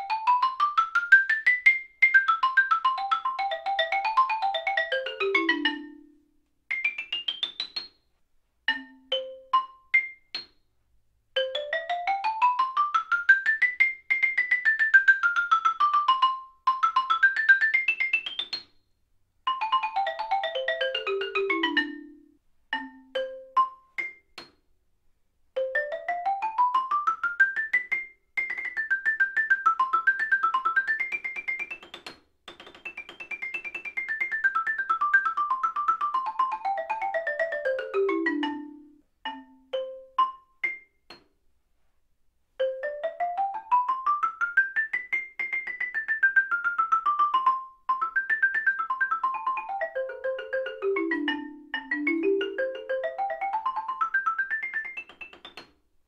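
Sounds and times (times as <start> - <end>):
xylophone scales: 0.0 - 7.9, 8.7 - 10.5, 19.5 - 24.3, 32.8 - 41.0, 42.6 - 55.6.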